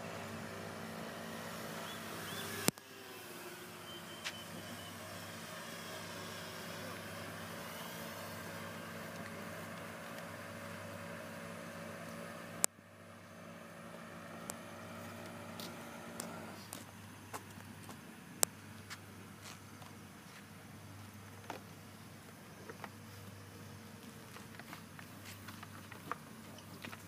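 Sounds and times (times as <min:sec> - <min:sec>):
model plane motors whining: 0:00.0 - 0:16.8.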